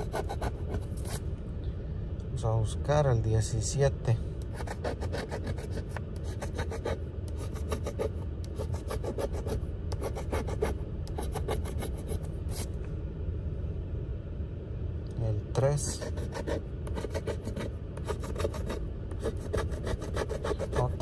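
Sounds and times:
coin scratching lottery ticket: 0.0 - 1.2, 4.6 - 12.7, 15.9 - 21.0.

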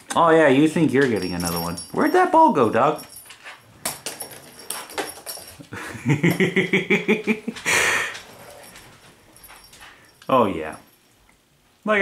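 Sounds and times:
dog huffing: 7.6 - 8.8.

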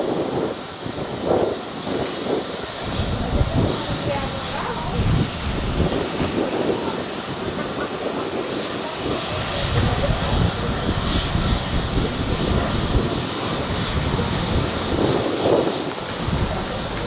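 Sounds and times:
jet airliner landing: 0.0 - 17.0.

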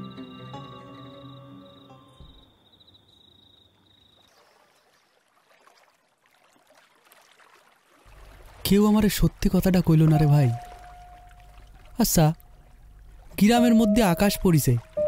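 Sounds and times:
background music: 0.0 - 2.4, 13.6 - 15.0
soft water lapping: 4.0 - 15.0.

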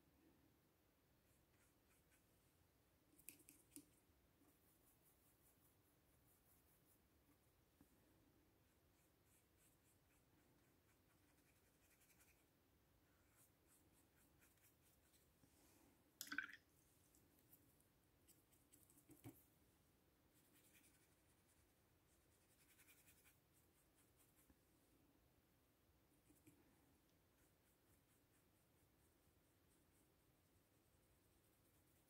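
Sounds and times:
paintbrush scratching on paper: 1.2 - 2.5, 3.1 - 8.0, 8.6 - 15.4, 18.2 - 19.6, 20.3 - 24.7, 26.1 - 32.0.

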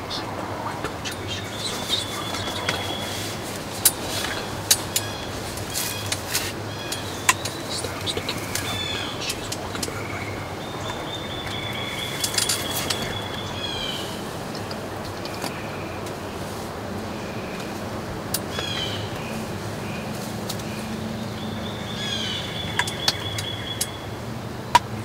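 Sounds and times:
songbirds trilling and chirping: 0.0 - 25.0
steady low hum: 0.0 - 25.0
sharp clicks: 22.7 - 24.0.

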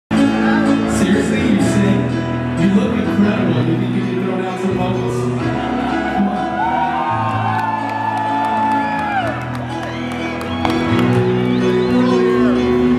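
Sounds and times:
man singing: 0.1 - 5.7
bass: 0.1 - 12.9
drums: 5.1 - 7.5
guitar chords: 8.3 - 12.9.

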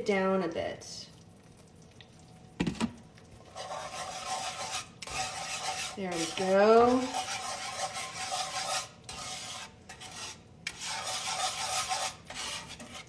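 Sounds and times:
whisk scraping a skillet: 3.4 - 13.0.

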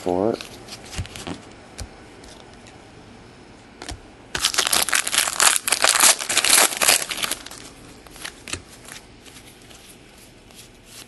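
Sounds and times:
foil wrapper tearing and crinkling: 4.4 - 8.6.

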